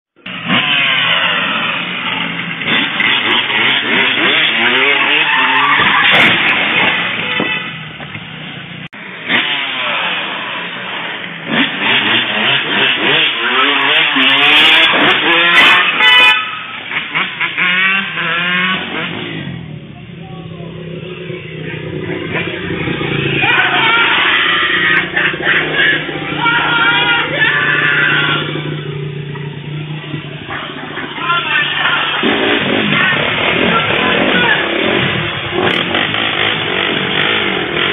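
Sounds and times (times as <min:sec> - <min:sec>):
engines revving: 0:00.2 - 0:37.9
crashing impacts: 0:05.7 - 0:11.8.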